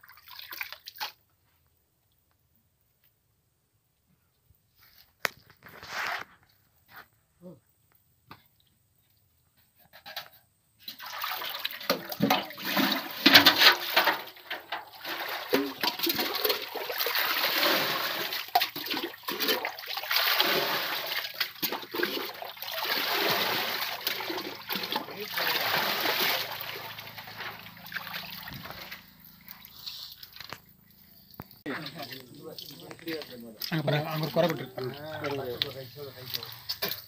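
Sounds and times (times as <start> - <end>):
water poured from metal pot: 10.8 - 30.6.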